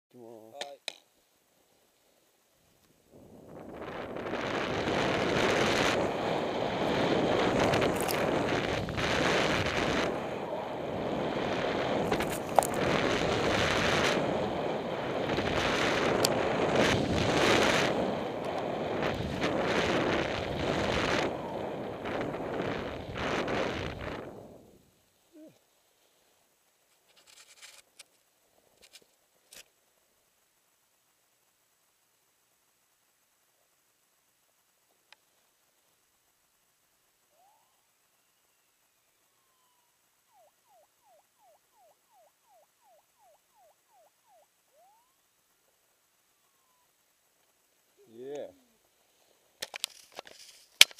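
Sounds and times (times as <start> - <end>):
skis hissing through snow: 3.1 - 24.7
wind rushing over microphone: 3.1 - 24.8
faint scrapes and clicks: 26.8 - 29.8, 49.0 - 50.9
faint whistled notes: 37.3 - 45.2.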